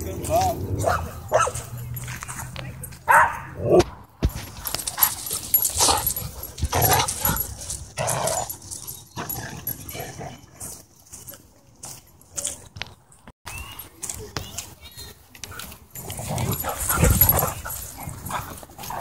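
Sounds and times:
dogs barking and yipping: 0.0 - 2.4, 3.0 - 3.8, 4.4 - 10.5, 16.0 - 19.0.

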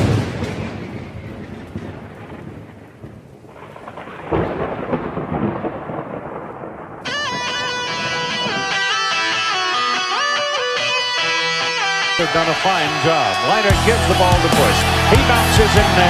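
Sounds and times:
thunder rumbling: 0.0 - 16.0
guitar music: 7.1 - 16.0
rain hissing: 12.2 - 16.0.

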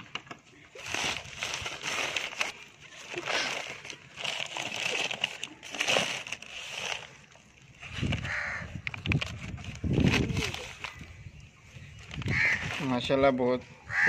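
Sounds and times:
newspaper crinkling and rustling: 0.5 - 11.2.

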